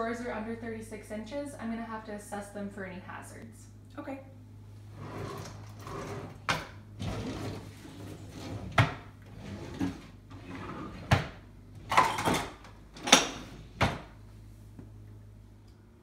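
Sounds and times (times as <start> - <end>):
drawers sliding: 4.9 - 14.2.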